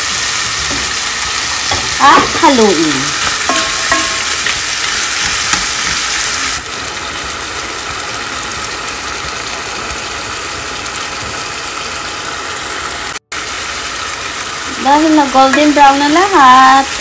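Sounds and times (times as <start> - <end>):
stirring in a pan: 0.0 - 6.6
food sizzling in a frying pan: 0.0 - 17.0.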